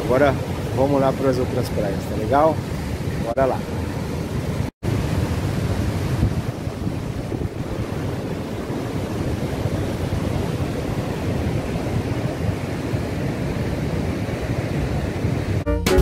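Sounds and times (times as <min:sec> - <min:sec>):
surf breaking on rocks: 0:00.0 - 0:15.6
wind buffeting microphone: 0:00.0 - 0:15.6.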